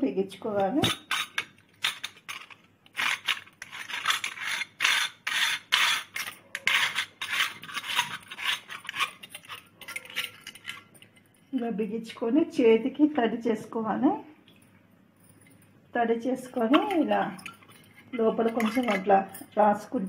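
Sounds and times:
metallic scrapes and clinks: 0.8 - 11.8, 16.4 - 20.0.

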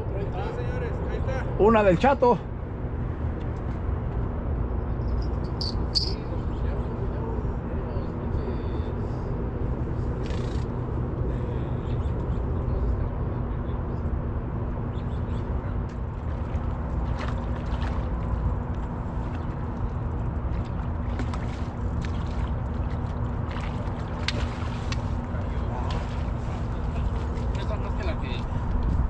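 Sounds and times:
constant low hum: 0.0 - 29.0
steady low rumble: 2.4 - 29.0
fish splashing at water surface: 16.3 - 18.5, 20.6 - 26.8.

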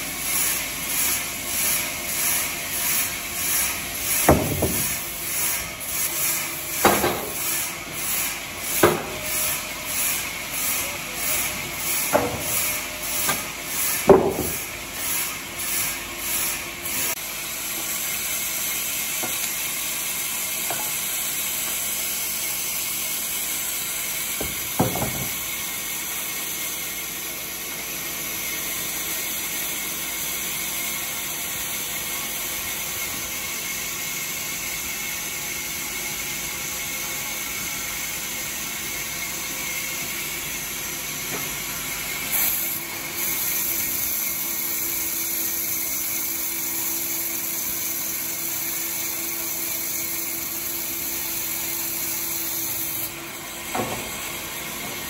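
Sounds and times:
band saw cutting timber: 0.0 - 55.0
sharp knock: 4.3 - 5.0.

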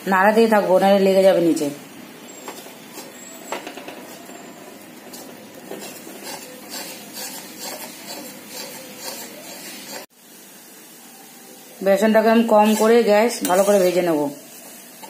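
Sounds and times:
ghee sizzling: 0.0 - 15.0
metal spatula scraping pan: 2.2 - 10.1, 12.4 - 15.0.

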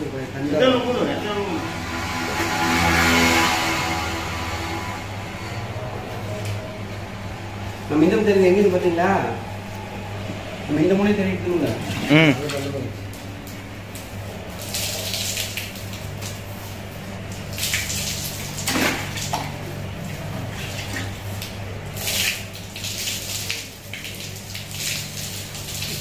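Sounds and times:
water splashing onto concrete: 11.5 - 26.0.

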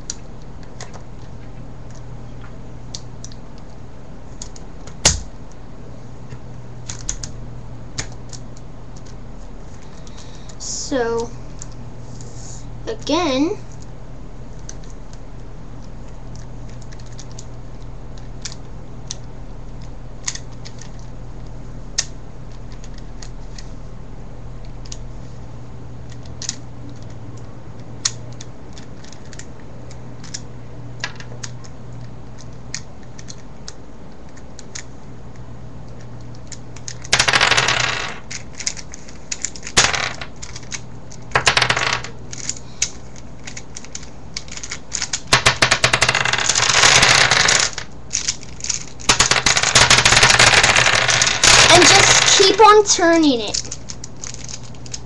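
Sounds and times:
plastic pieces clattering onto table: 44.5 - 52.7.

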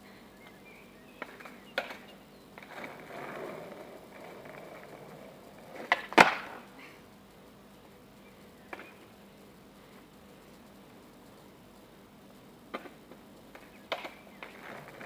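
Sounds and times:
skateboard wheels rolling on asphalt: 0.0 - 15.0
skateboard knocking: 1.2 - 6.7, 12.7 - 15.0
skateboard tail clacks: 1.2 - 6.8, 12.7 - 15.0.

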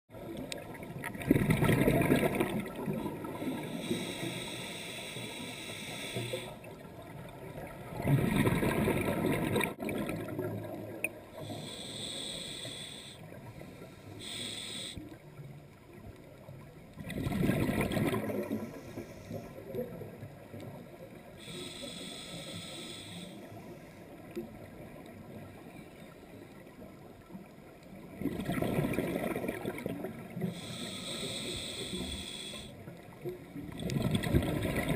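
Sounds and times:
exhaled bubbles underwater: 0.1 - 4.5, 6.2 - 11.7, 15.3 - 21.5, 27.9 - 30.8, 32.8 - 34.9
regulator inhalation hiss: 3.3 - 6.6, 11.4 - 15.1, 21.4 - 23.9, 30.4 - 32.8.

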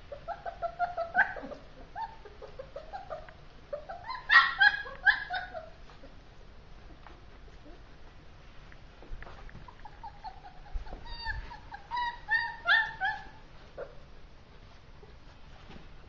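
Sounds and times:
puppies whining and yelping: 0.0 - 6.2, 9.6 - 15.1.

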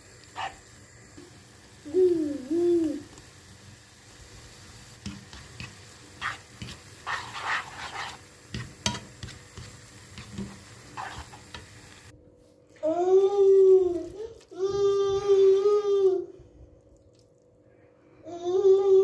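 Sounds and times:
faint sizzle: 0.0 - 12.1, 12.7 - 16.4
utensil scraping and clicking on pan: 5.1 - 11.7.

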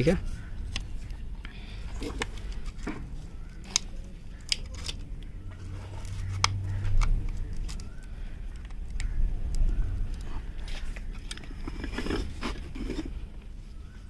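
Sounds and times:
low steady hum: 0.0 - 14.0
paper handling clicks and scratches: 2.0 - 13.2.

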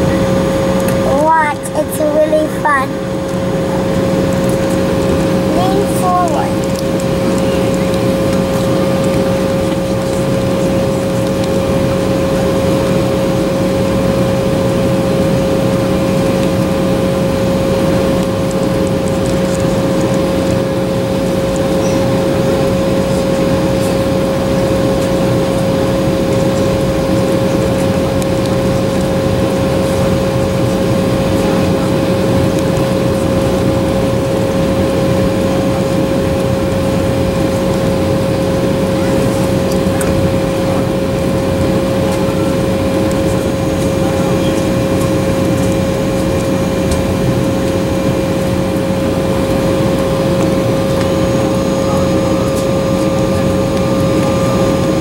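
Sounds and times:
jet engines idling in cabin: 0.0 - 55.0.

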